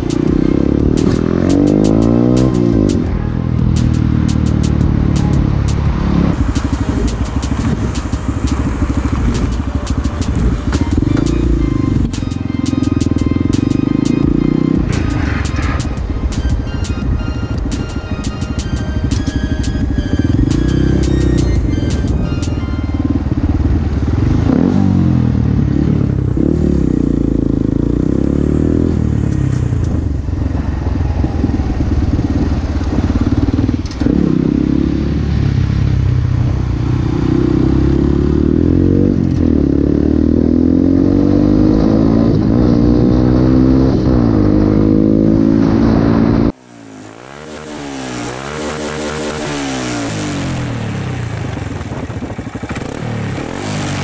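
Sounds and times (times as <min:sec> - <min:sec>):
motorcycle engine revving: 0:00.0 - 0:54.0
wind rush: 0:50.2 - 0:54.0.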